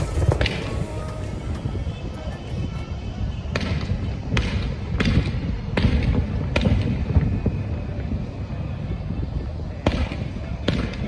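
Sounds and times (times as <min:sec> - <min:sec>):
fireworks bangs: 0:00.0 - 0:07.6.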